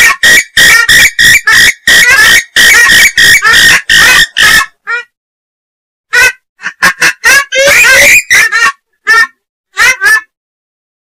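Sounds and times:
swamphen harsh squawking calls: 0:00.0 - 0:05.0, 0:07.1 - 0:10.3.

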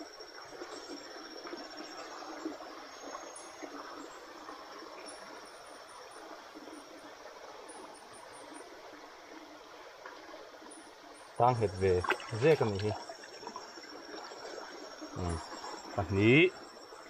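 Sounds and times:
night insects calling: 0:00.0 - 0:17.0
water dripping off a net: 0:11.3 - 0:15.1
small splashes: 0:11.4 - 0:15.9.

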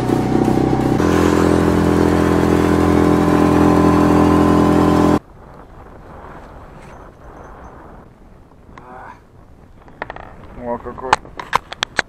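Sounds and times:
outboard motor running: 0:00.0 - 0:05.2
water rushing past hull: 0:00.0 - 0:05.2.

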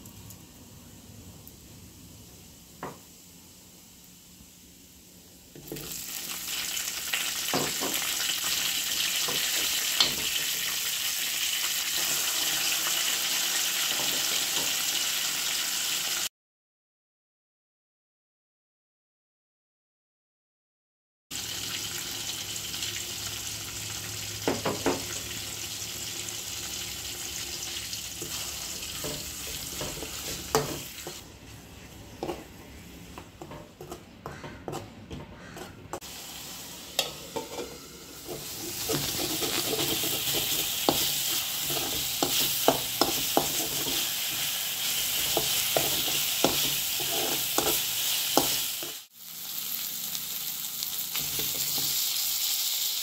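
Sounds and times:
paste sizzling in hot oil: 0:05.6 - 0:16.3, 0:21.4 - 0:34.0, 0:35.4 - 0:53.0
spoon scraping a metal pan: 0:31.8 - 0:36.0, 0:37.0 - 0:49.0.

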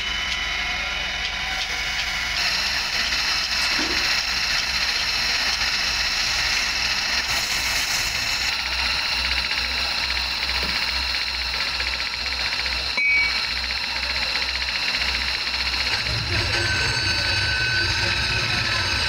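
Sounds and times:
polishing spindle whining: 0:00.0 - 0:19.0
metal grinding hiss: 0:01.7 - 0:12.0.

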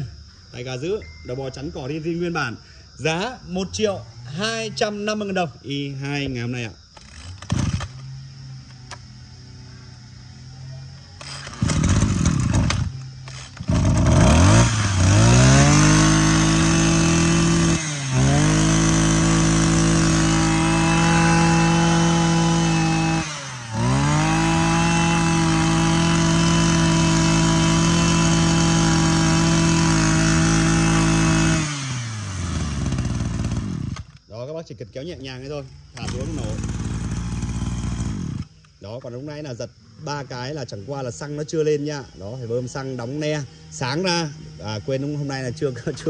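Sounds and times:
recoil starter pulls: 0:06.9 - 0:09.1, 0:11.2 - 0:34.3, 0:35.9 - 0:38.8
brush cutter engine running: 0:07.0 - 0:09.5, 0:11.1 - 0:34.2, 0:35.9 - 0:38.7, 0:42.6 - 0:46.0.

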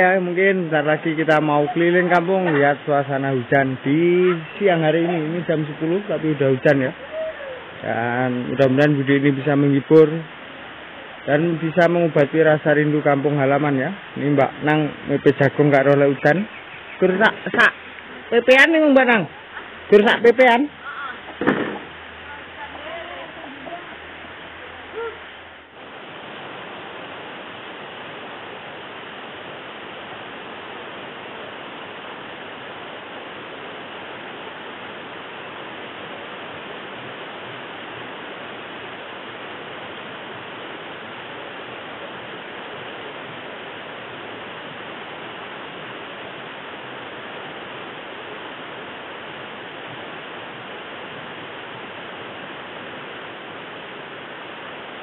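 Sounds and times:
rain on trees and roof: 0:00.0 - 0:55.0
short knock: 0:21.4 - 0:21.9.

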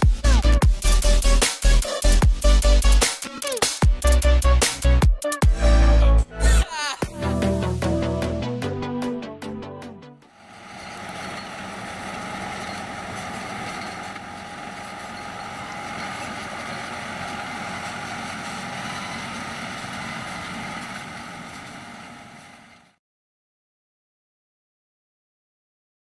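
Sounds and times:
tractor diesel engine under load: 0:10.3 - 0:23.0.

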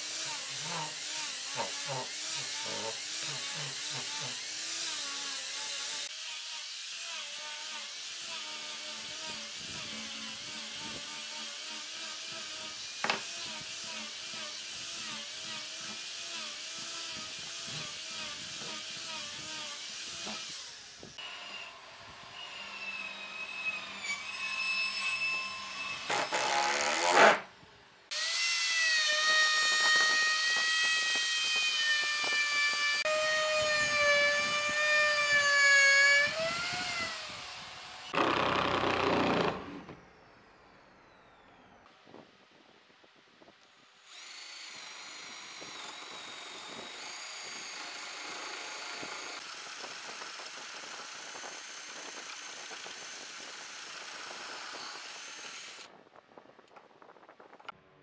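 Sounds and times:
angle grinder sanding wood: 0:00.0 - 0:21.1, 0:24.9 - 0:27.4, 0:28.1 - 0:38.1.

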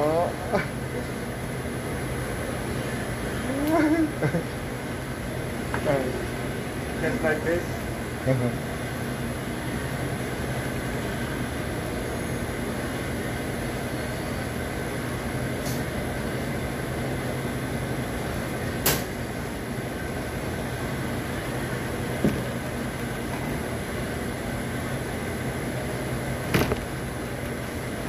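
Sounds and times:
kitchen ventilation drone: 0:00.0 - 0:28.0
sharp click: 0:18.8 - 0:19.1.

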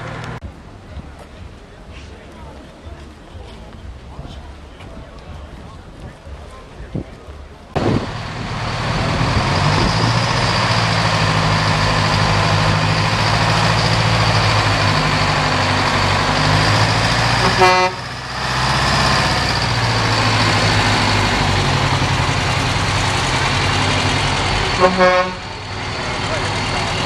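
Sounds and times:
truck diesel engine running: 0:07.7 - 0:27.0
truck horn blast: 0:17.3 - 0:18.2, 0:24.7 - 0:25.7.

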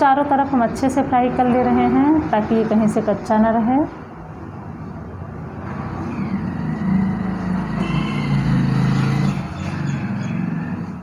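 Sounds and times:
vehicle engine drone: 0:04.8 - 0:11.0.

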